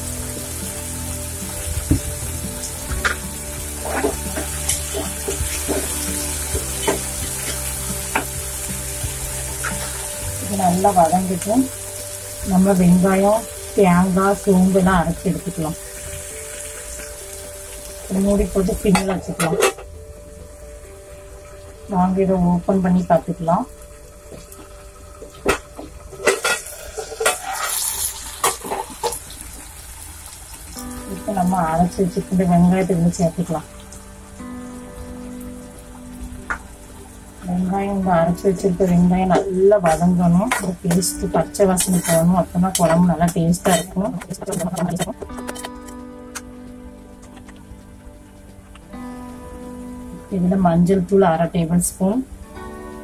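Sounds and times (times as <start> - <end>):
vegetables sizzling in oil: 0.0 - 53.0
ladle scraping and tapping pan: 41.8 - 46.0.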